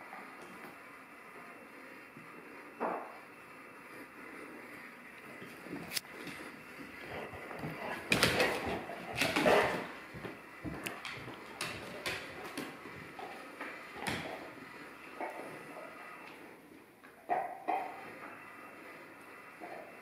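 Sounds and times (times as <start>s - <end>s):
dog paws scrabbling: 5.5s - 15.8s
dog claws clicking on wood floor: 7.5s - 13.4s, 14.0s - 14.4s.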